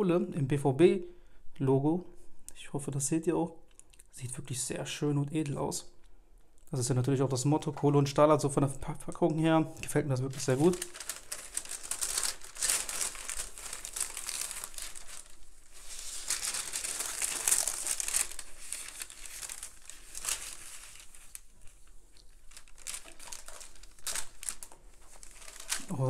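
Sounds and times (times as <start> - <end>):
tissue paper crinkling: 10.3 - 26.0.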